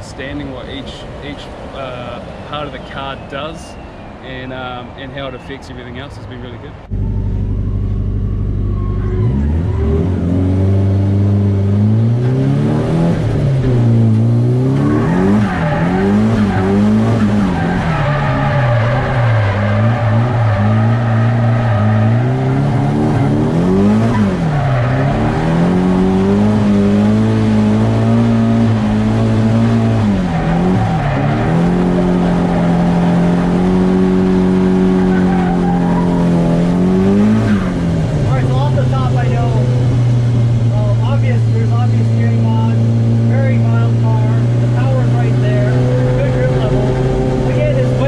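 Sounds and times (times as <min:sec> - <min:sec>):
car engine revving: 0:00.0 - 0:48.0
tyres squealing: 0:14.6 - 0:48.0.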